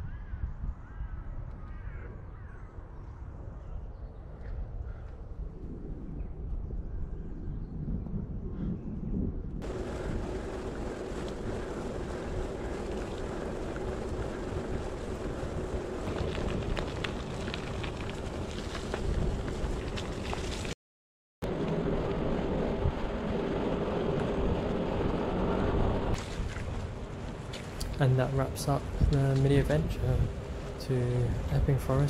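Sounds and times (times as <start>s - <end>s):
wind buffeting microphone: 0.0s - 20.8s, 21.5s - 32.0s
bicycle tyres rolling: 9.6s - 20.8s, 21.4s - 32.0s
crackling clicks: 9.6s - 20.8s, 26.1s - 29.8s.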